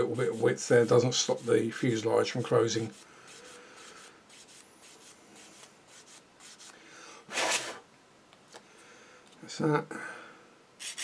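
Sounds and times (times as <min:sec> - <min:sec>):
sanding stick scraping plastic: 0:10.8 - 0:11.0.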